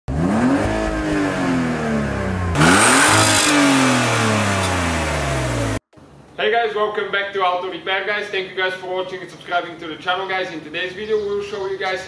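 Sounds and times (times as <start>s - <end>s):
car engine revving: 0.1s - 5.8s.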